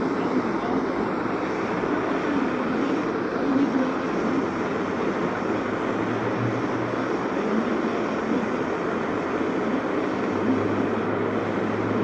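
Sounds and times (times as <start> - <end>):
gas torch flame rushing: 0.0 - 12.0.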